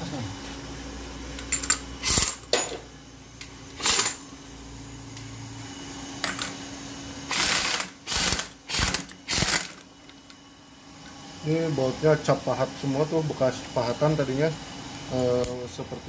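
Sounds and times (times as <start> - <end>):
pneumatic wrench bursts: 1.6 - 2.5, 3.8 - 4.2, 7.3 - 9.8.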